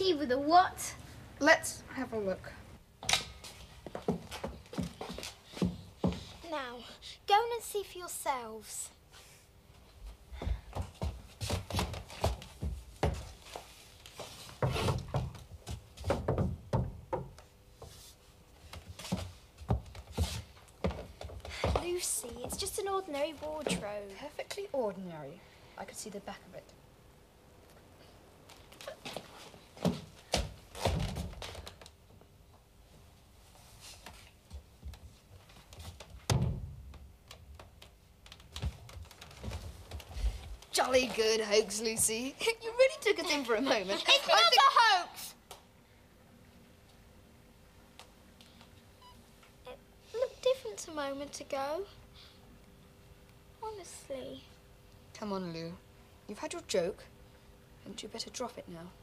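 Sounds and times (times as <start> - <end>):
rubbing and rustling: 10.8 - 16.6, 17.8 - 24.1
knocks and thunks on wood: 14.6 - 17.4, 36.2 - 37.0
dull thumps of wooden wardrobe: 16.0 - 17.4.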